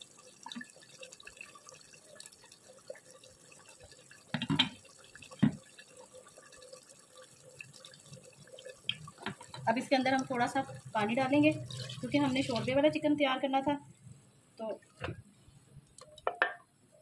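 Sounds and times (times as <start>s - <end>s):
gravy bubbles popping: 0.0s - 12.9s.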